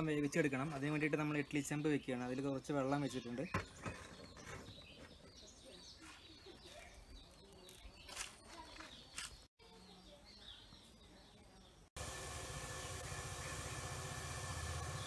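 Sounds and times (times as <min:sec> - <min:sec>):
faint birds chirping: 0:00.0 - 0:12.0.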